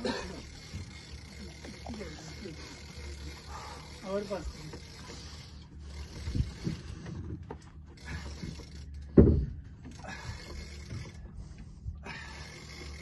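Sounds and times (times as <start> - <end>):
boat engine humming: 0.0 - 13.0
dull thumps: 9.1 - 9.8.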